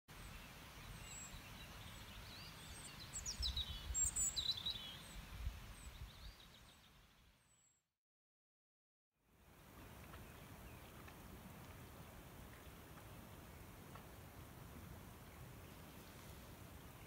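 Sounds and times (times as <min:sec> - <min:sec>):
songbird chirping: 0:00.1 - 0:07.9, 0:15.2 - 0:17.0.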